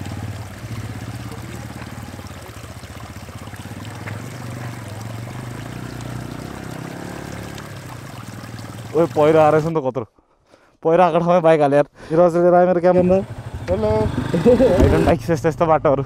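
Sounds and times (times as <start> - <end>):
small motorcycle engine running: 0.0 - 7.8, 13.0 - 15.2
water trickling over rocks: 0.0 - 9.8.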